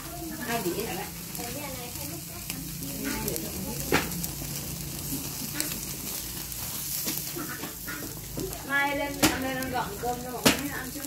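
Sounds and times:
pork sizzling on charcoal: 0:00.0 - 0:11.0
sharp pops: 0:09.1 - 0:09.7, 0:10.4 - 0:10.8.

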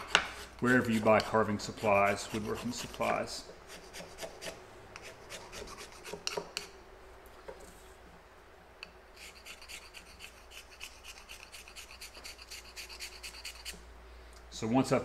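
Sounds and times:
compound bar rubbing on leather: 0:00.0 - 0:06.3.

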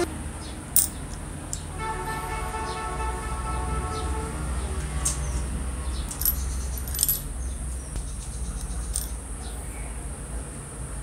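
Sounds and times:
metal washer clinks: 0:00.8 - 0:01.2, 0:06.1 - 0:07.3, 0:08.8 - 0:09.2.

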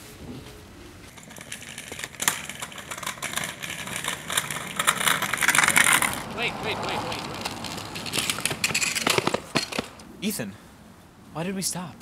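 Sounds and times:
scooter wheels rolling on asphalt: 0:01.0 - 0:10.4.

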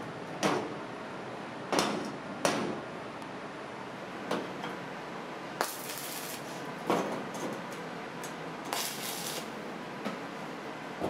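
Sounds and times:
arc welding crackle: 0:05.6 - 0:06.9, 0:08.2 - 0:09.7.

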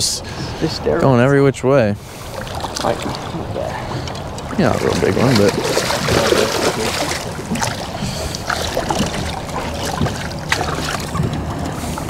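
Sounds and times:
water lapping around boat: 0:00.0 - 0:12.0
wind: 0:00.0 - 0:12.0
faint clicks and knocks: 0:07.4 - 0:12.0.

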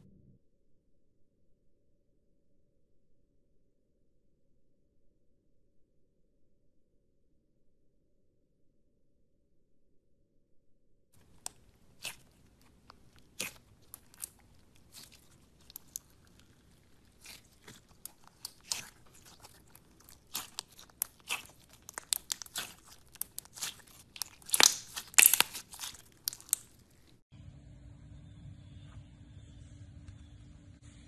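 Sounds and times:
slime crackling pops and crunches: 0:11.2 - 0:27.2.

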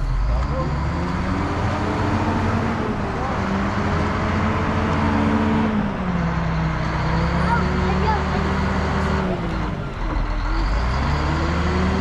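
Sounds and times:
diesel engine rumbling: 0:00.0 - 0:12.0.

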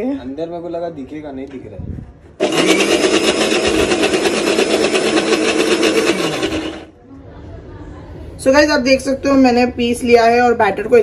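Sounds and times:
mixer grinder running: 0:02.4 - 0:07.0.

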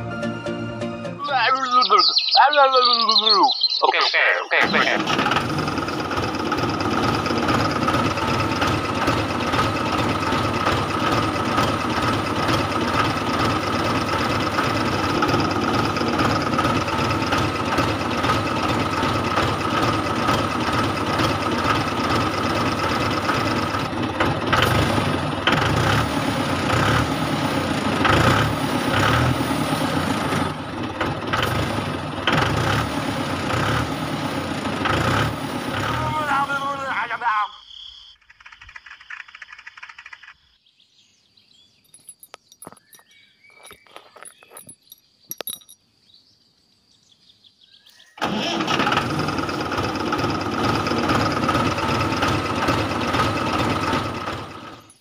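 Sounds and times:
toy tractor motor rumbling: 0:04.6 - 0:37.1, 0:38.1 - 0:40.5, 0:48.2 - 0:55.0.

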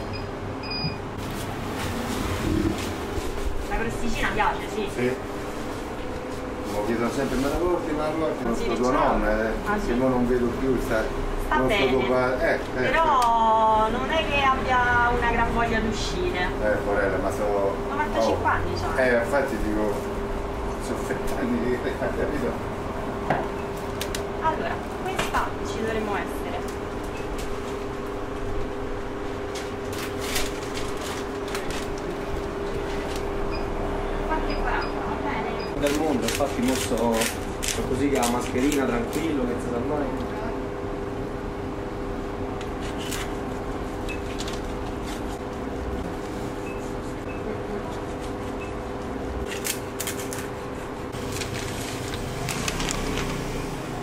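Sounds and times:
machine hum: 0:00.0 - 0:54.0
paper rustling and clicks: 0:29.5 - 0:32.2, 0:35.8 - 0:39.4, 0:44.2 - 0:45.4, 0:49.4 - 0:50.6, 0:51.2 - 0:53.5.

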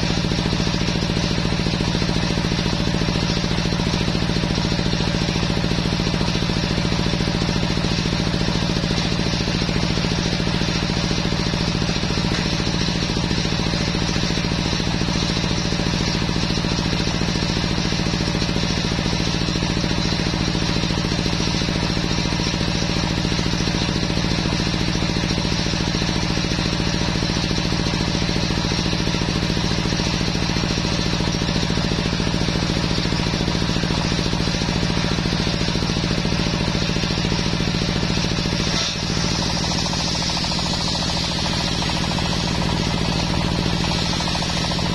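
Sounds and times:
circular saw ripping log: 0:38.6 - 0:39.4.

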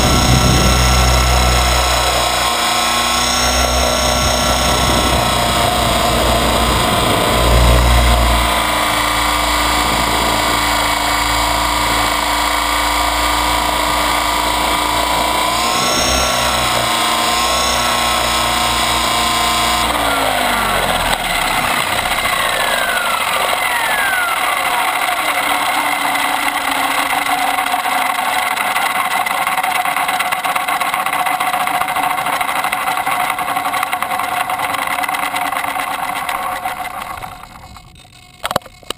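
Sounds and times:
rc helicopter rotor whining: 0:00.0 - 0:38.9
low rumble: 0:03.3 - 0:12.1.

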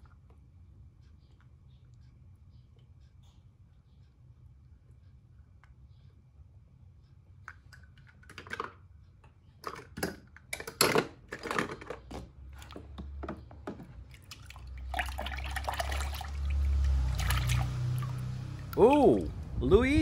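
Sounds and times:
small splashes and drips: 0:14.0 - 0:19.5
hand sloshing water: 0:14.1 - 0:19.4.

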